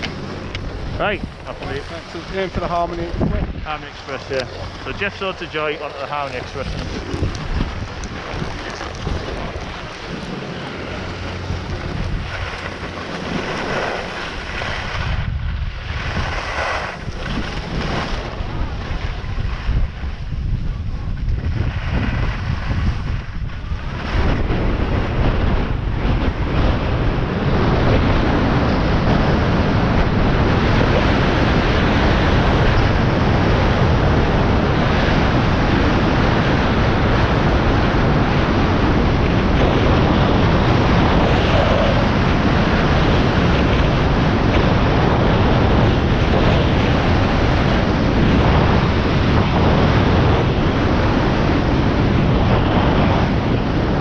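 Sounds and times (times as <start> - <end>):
wind on microphone: 0.0 - 54.0
skis sliding on snow: 1.0 - 3.2, 3.8 - 15.2, 15.8 - 20.2.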